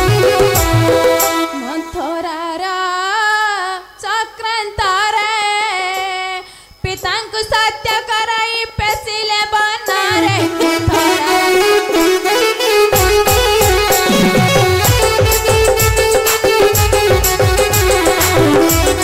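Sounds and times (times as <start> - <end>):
girl singing: 1.4 - 12.4.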